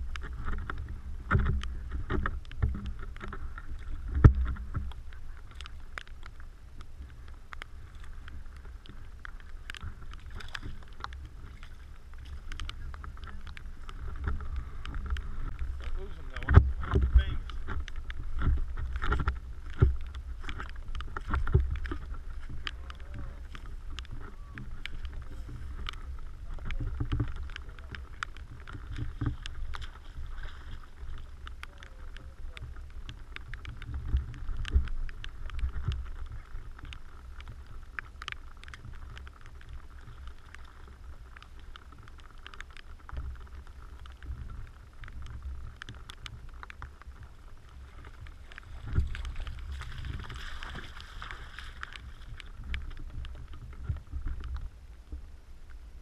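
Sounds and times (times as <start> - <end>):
water lapping against camera housing: 0.0 - 55.4
low rumble: 0.0 - 56.0
boot splashing through water: 47.4 - 52.5.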